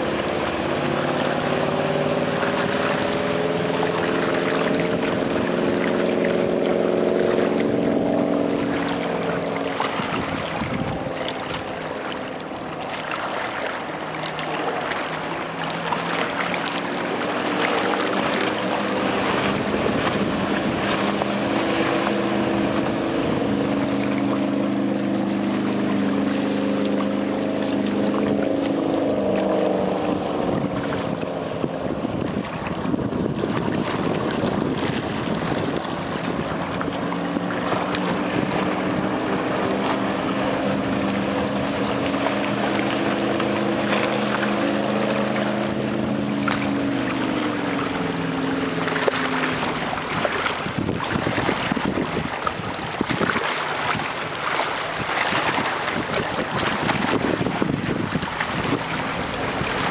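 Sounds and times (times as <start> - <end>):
boat engine running at speed: 0.0 - 59.9.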